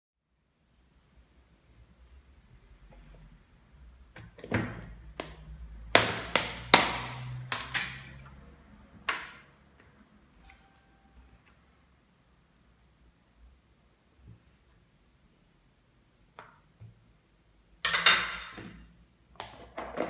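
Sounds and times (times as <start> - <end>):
plastic lid snapping: 6.0 - 8.1.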